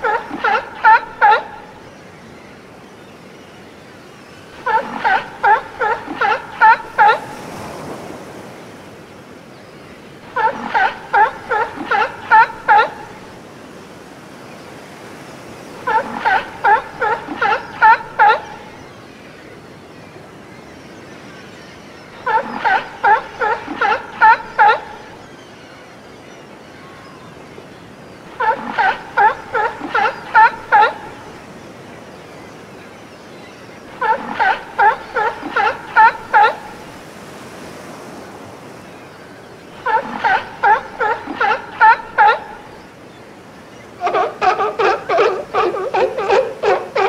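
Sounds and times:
seal barking: 0.0s - 1.7s, 4.6s - 7.7s, 10.3s - 13.3s, 15.8s - 18.7s, 22.2s - 25.2s, 28.3s - 31.4s, 33.8s - 36.9s, 39.7s - 42.7s, 43.9s - 47.0s.

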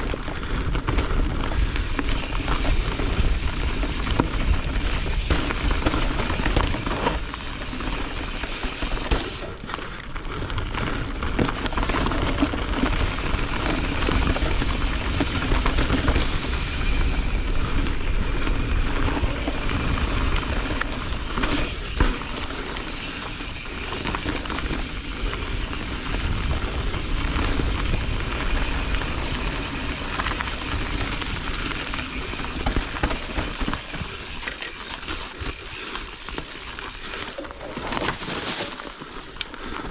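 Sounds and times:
bike rattling: 0.0s - 39.9s
tyres rolling over dirt: 0.0s - 39.9s
wind rush on microphone: 23.2s - 34.5s.

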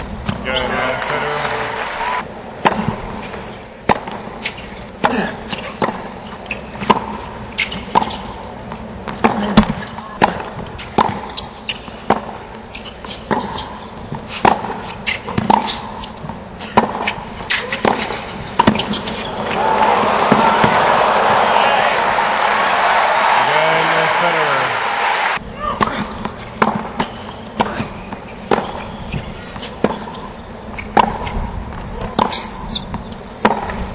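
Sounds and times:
crowd applause and cheering: 0.5s - 2.2s, 19.4s - 25.4s
tennis ball bounces: 2.6s - 19.6s, 20.3s - 22.1s, 25.8s - 31.4s, 32.0s - 33.9s
tennis racquet hits: 2.6s - 30.2s, 30.8s - 31.4s, 32.0s - 33.9s.

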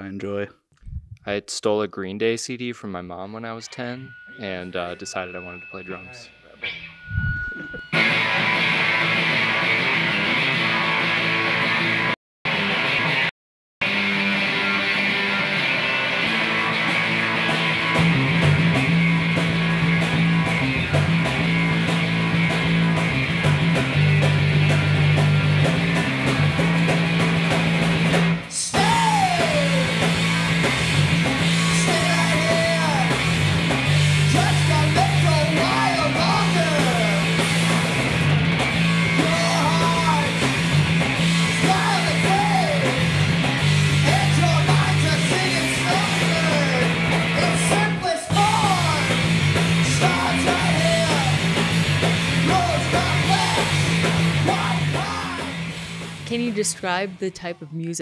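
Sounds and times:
noise rock band playing: 7.8s - 56.7s
heavy sustained bass notes: 16.4s - 47.6s
sung and shouted vocals: 28.5s - 30.1s, 31.7s - 33.2s, 34.3s - 37.3s, 39.2s - 40.4s, 41.6s - 43.0s, 49.9s - 51.5s, 52.4s - 55.6s.

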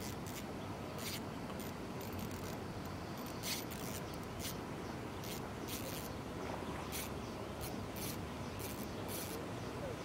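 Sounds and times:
fishing reel hissing: 0.0s - 4.6s, 5.2s - 6.1s, 6.9s - 9.4s
steady hiss: 0.0s - 10.0s.

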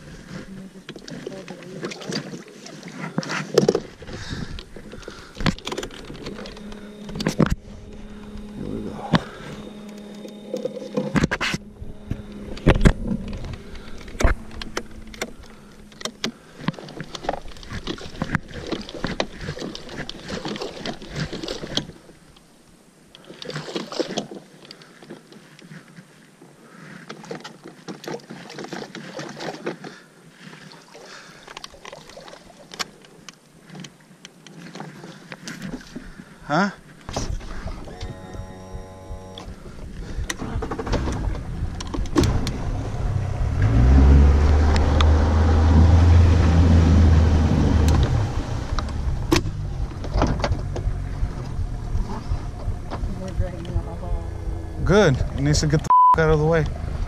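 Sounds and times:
boat scraping through weeds: 0.0s - 22.2s
electric trolling motor humming: 3.6s - 22.8s, 36.1s - 55.8s
clunks and knocks of motor mount: 48.8s - 51.5s.

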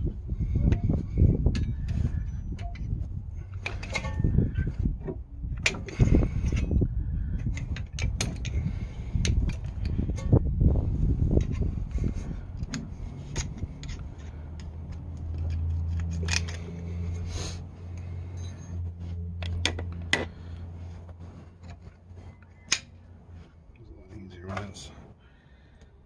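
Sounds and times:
low rumble: 0.0s - 23.9s
low steady hum: 0.0s - 26.0s
metal clicks of brake pads: 0.7s - 2.9s, 3.5s - 4.3s, 7.4s - 10.4s, 11.4s - 17.2s, 19.4s - 20.4s, 21.6s - 23.0s.

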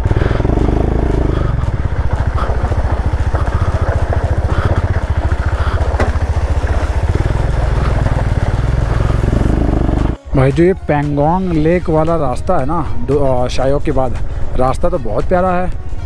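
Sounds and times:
motorcycle engine at low revs: 0.0s - 10.2s
tyres rolling over gravel: 0.0s - 10.2s.

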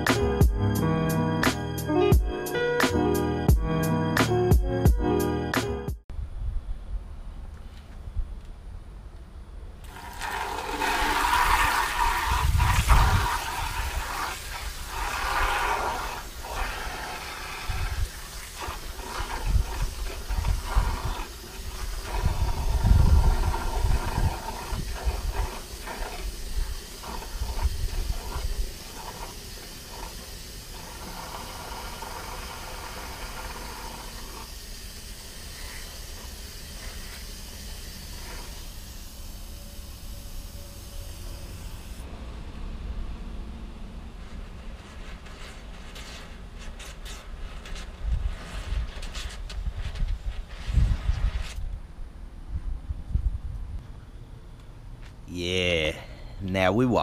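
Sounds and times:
hose water spraying into bucket: 9.8s - 42.0s, 44.2s - 51.6s.

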